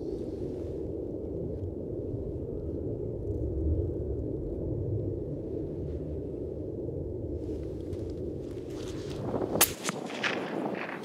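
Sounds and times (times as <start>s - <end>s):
steady low rumble: 0.0s - 11.0s
rustles and scuffs: 7.4s - 11.0s
footsteps on rough grass: 8.0s - 11.0s.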